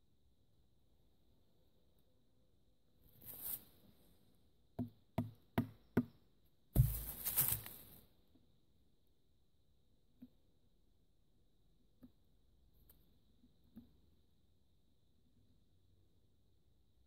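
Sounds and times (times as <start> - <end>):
knife crunching into wood: 6.8 - 7.8.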